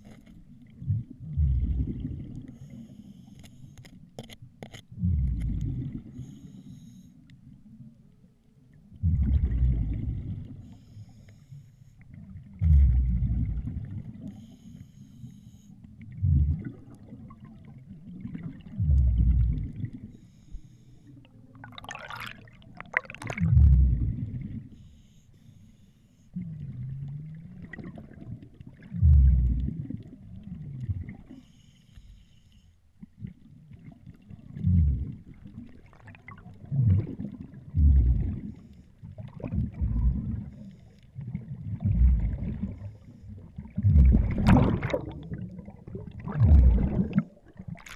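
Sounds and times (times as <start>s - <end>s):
exhaled bubbles underwater: 0.0s - 2.9s, 4.9s - 6.4s, 8.7s - 10.8s, 12.1s - 14.5s, 15.9s - 20.3s, 21.2s - 24.9s, 26.3s - 31.5s, 33.0s - 47.9s.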